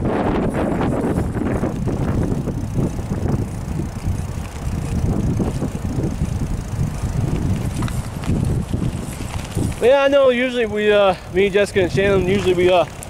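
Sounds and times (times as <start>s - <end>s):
bicycle tyres rumbling on asphalt: 0.0s - 13.0s
wind buffeting microphone: 0.0s - 13.0s.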